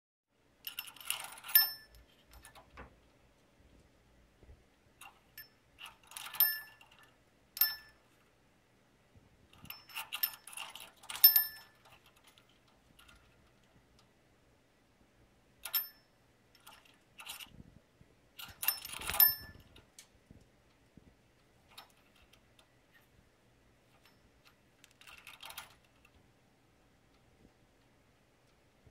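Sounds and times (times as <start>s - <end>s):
small metal bell ringing: 0.7s - 2.6s, 5.3s - 7.0s, 7.6s - 8.1s, 9.6s - 12.0s, 15.6s - 16.1s, 18.4s - 19.7s.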